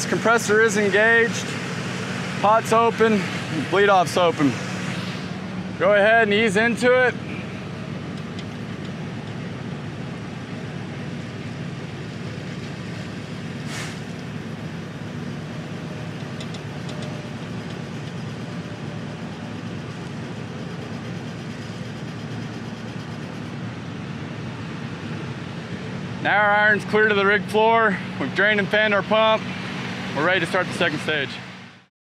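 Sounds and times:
pump truck rumble: 0:00.0 - 0:31.9
air hiss: 0:13.6 - 0:14.2.

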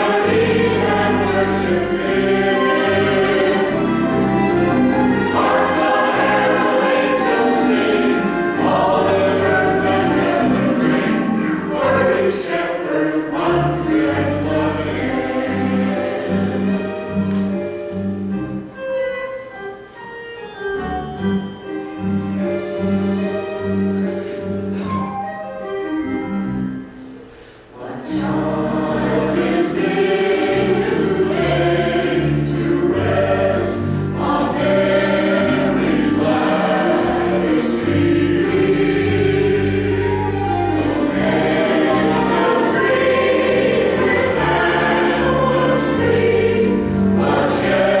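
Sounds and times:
church choir singing: 0:00.0 - 0:17.5, 0:27.7 - 0:48.0.

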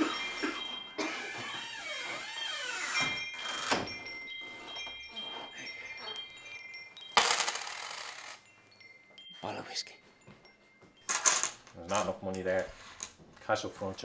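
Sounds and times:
metal wind chime ringing: 0:00.0 - 0:12.2
coins clattering onto counter: 0:07.1 - 0:08.4, 0:11.1 - 0:12.1.

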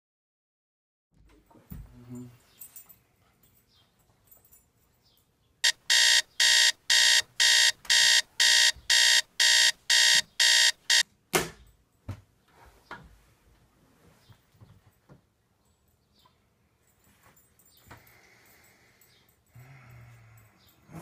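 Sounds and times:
phone alarm beeping: 0:05.6 - 0:11.0.

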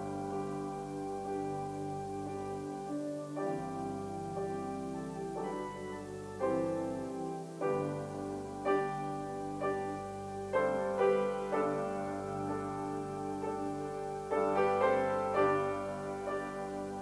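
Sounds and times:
slow keyboard music: 0:00.0 - 0:17.0.

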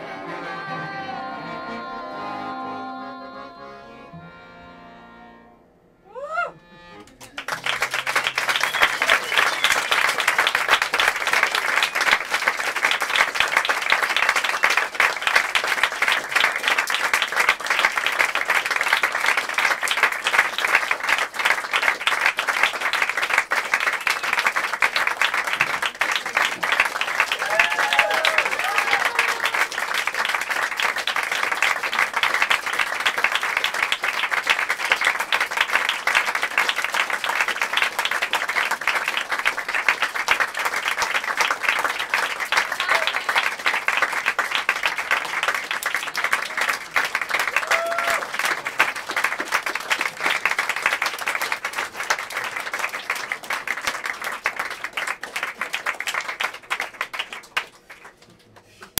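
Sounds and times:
crowd crying out: 0:06.0 - 0:06.6, 0:27.3 - 0:29.7, 0:47.5 - 0:48.2
audience applauding: 0:07.0 - 0:59.0.

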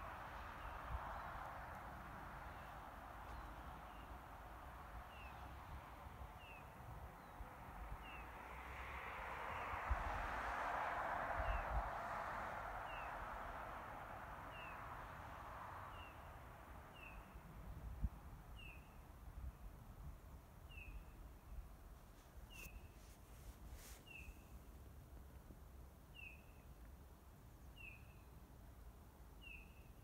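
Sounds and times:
soft hiss: 0:21.7 - 0:25.6.

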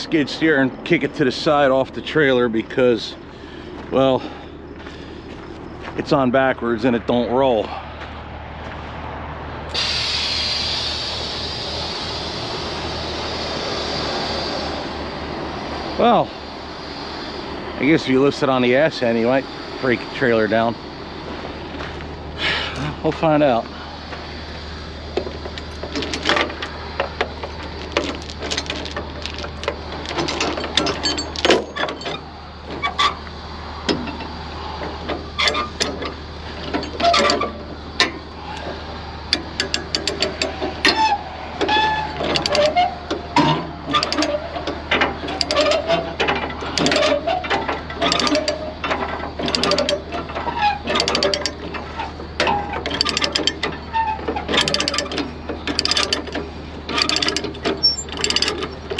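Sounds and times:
metal chain clanks and rattles: 0:25.2 - 0:33.2, 0:35.0 - 0:38.7, 0:39.3 - 0:58.9.

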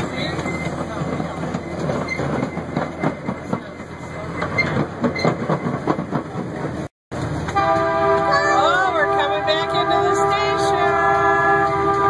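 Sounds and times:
train wheels clicking over rail joints: 0:00.0 - 0:08.3
low rumble of train cars: 0:00.0 - 0:12.0.

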